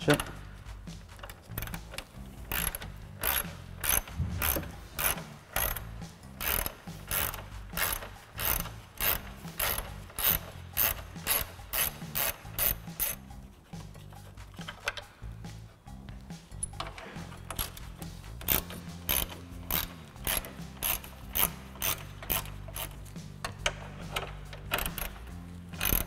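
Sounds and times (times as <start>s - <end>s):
hand ratchet clicking: 0.0s - 26.0s.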